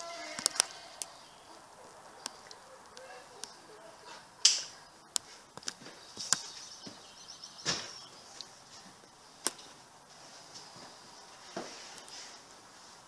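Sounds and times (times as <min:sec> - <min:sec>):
faint high bird chirping: 0:00.0 - 0:09.2.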